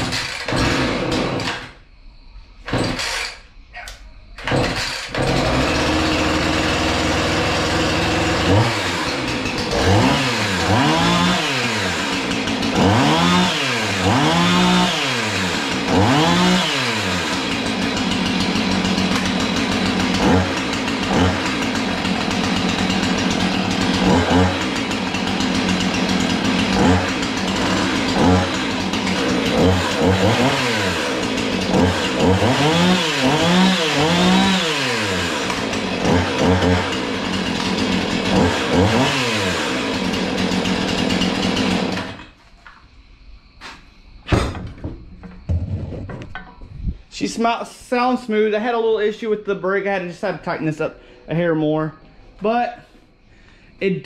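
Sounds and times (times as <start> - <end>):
chainsaw idling: 0.0 - 1.8, 2.7 - 3.4, 4.4 - 42.4
chainsaw throttle revs: 0.0 - 1.8, 2.7 - 3.4, 4.4 - 42.4.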